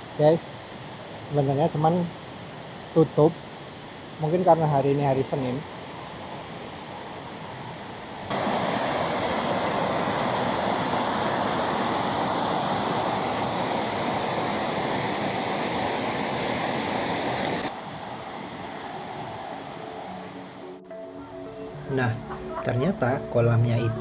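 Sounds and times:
water rushing over rocks: 8.3 - 19.8.

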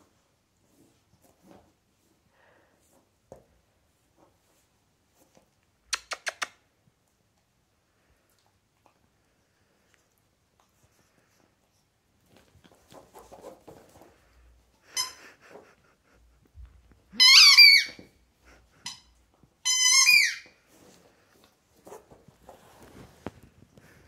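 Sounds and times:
soft scuffling on mat: 0.0 - 5.6, 12.2 - 14.6, 20.6 - 24.0
rubber squeaky ball squeaking: 17.1 - 18.2, 18.8 - 20.6.

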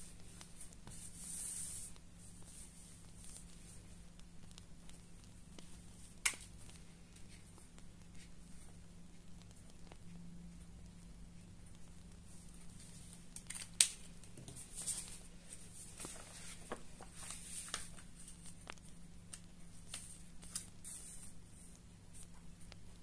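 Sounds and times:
paper sheets rustling and sliding: 14.5 - 18.5.

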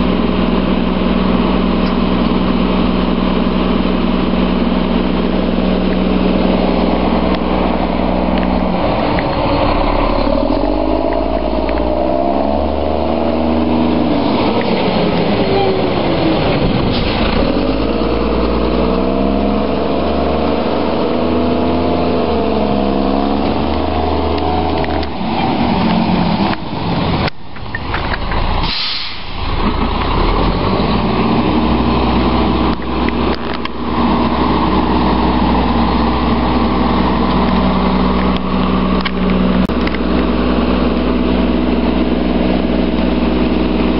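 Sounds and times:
truck diesel engine revving: 0.0 - 27.3, 28.2 - 43.9
air brake hiss: 28.6 - 29.5.

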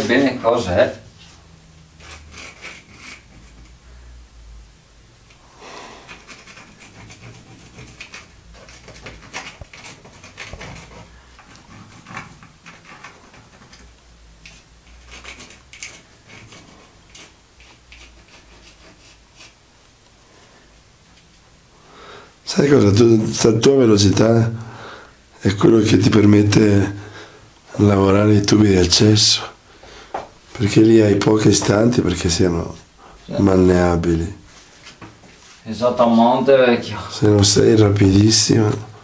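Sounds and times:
pencil scratching on wall: 2.0 - 3.8, 5.9 - 19.6.

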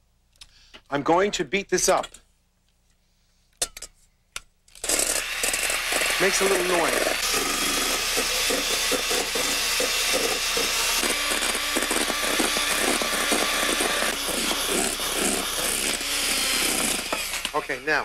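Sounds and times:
electric hand mixer whipping: 4.8 - 18.0.

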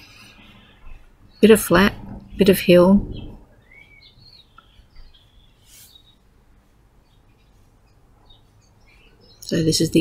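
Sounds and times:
faint bird chirps: 0.0 - 10.0.

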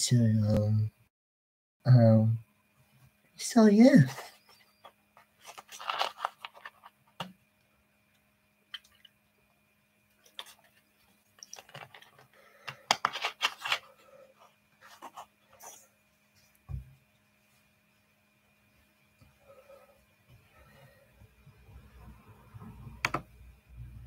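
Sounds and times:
plastic bottle clicks and rustles: 5.4 - 7.4, 11.4 - 13.9.

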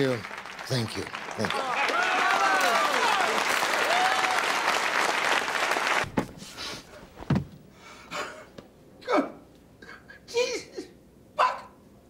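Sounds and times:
audience applauding: 0.0 - 6.2
dull thumps: 6.0 - 7.7.

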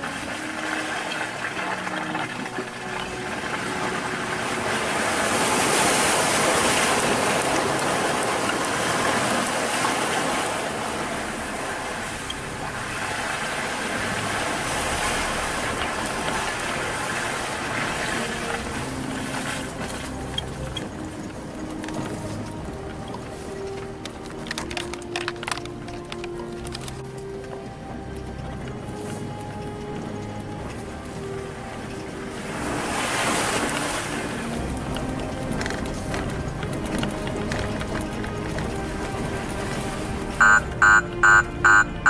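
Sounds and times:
off-road vehicle engine: 2.9 - 17.8.

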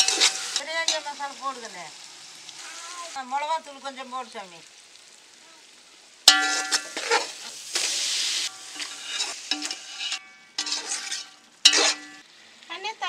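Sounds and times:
metal spatula scraping a pot: 0.0 - 1.2, 6.3 - 12.2
masala sizzling in hot oil: 0.0 - 13.0.

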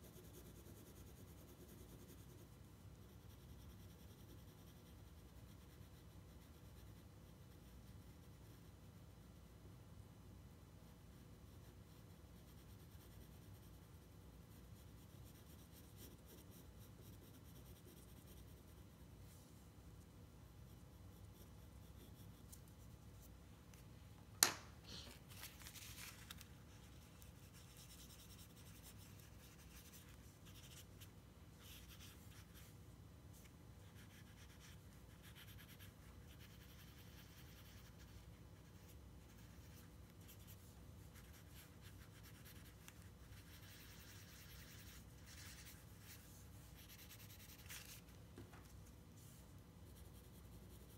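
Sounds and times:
pencil shading on paper: 0.0 - 8.7, 11.4 - 19.0, 20.7 - 22.9, 26.9 - 31.0, 33.8 - 48.0.

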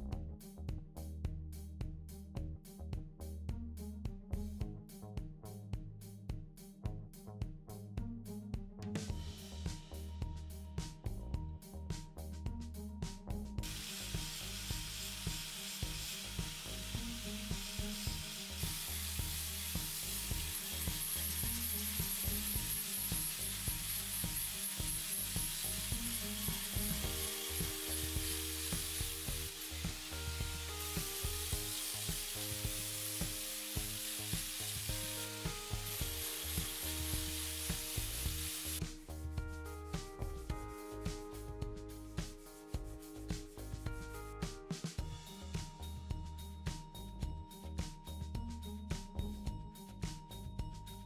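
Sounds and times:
background music with beat: 0.0 - 51.0
hand file on metal: 13.6 - 35.0
angle grinder on steel: 13.6 - 38.8.

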